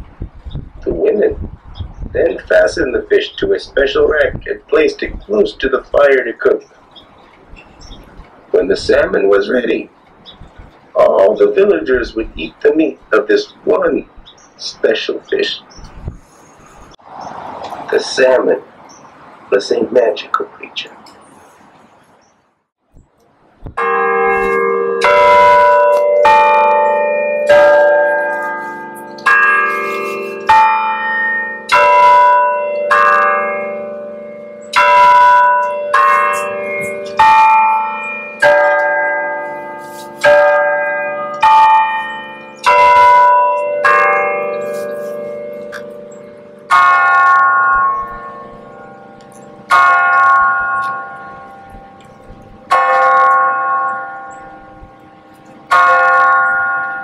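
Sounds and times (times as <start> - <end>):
tower bells playing slow tune: 23.8 - 57.0.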